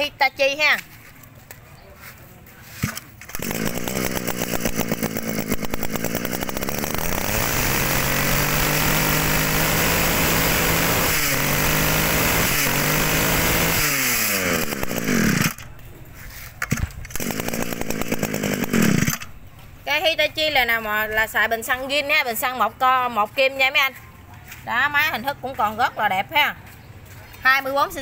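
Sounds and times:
brush cutter engine revving: 2.8 - 15.8, 16.7 - 19.4.

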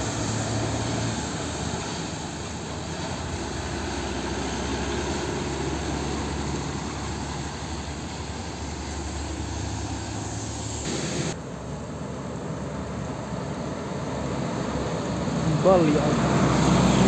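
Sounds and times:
diesel truck engine running: 0.0 - 17.0
tyres on a wet road: 0.0 - 17.0.

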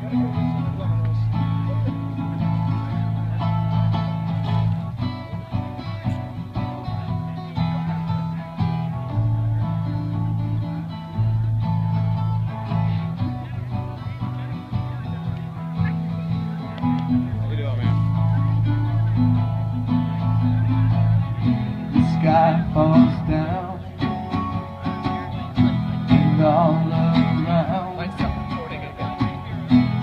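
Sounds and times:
acoustic guitars strumming: 0.0 - 30.0.

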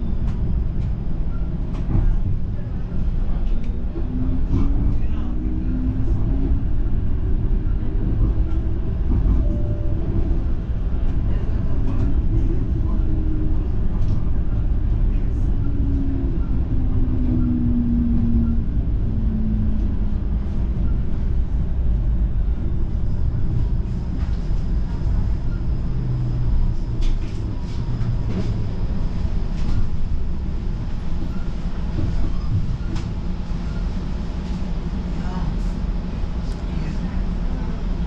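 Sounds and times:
streetcar low rumble: 0.0 - 38.0.

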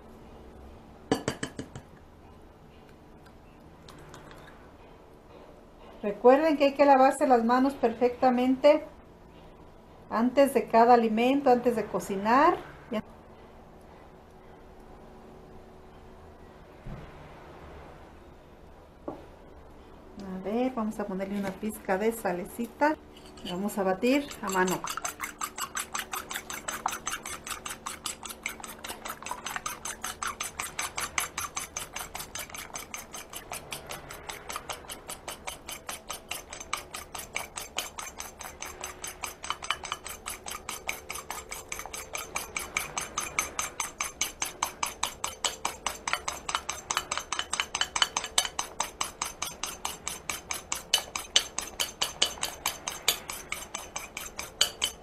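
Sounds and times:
fork clattering against ceramic bowl: 23.2 - 55.0.

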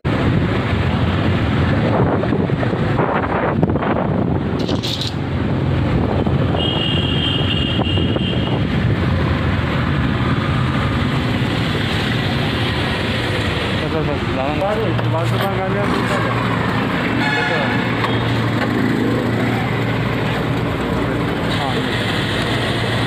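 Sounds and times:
wind buffeting microphone: 0.1 - 6.6, 7.7 - 14.3.

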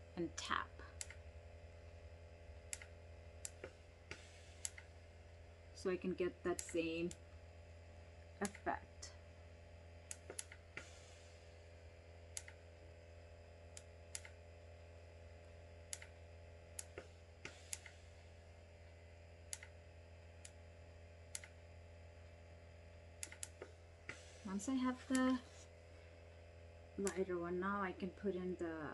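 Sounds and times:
low steady hum: 0.0 - 28.9
faint small clicks: 10.1 - 10.9, 12.3 - 12.6, 13.7 - 14.4, 15.9 - 16.2, 19.5 - 19.8, 21.3 - 21.6, 23.2 - 23.8.

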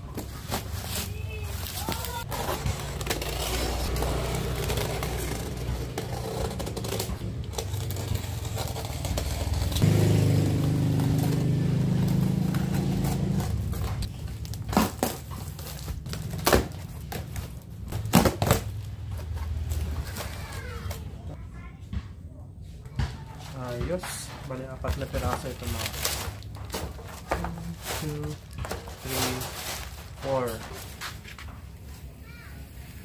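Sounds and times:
box cutter slitting tape and cardboard: 0.3 - 18.8, 24.8 - 31.0
cardboard flaps knocking and rustling: 23.4 - 31.3.

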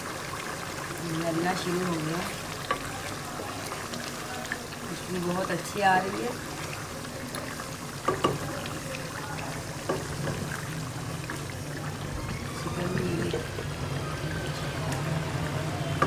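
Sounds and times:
spatula tapping on pan: 8.0 - 8.5.

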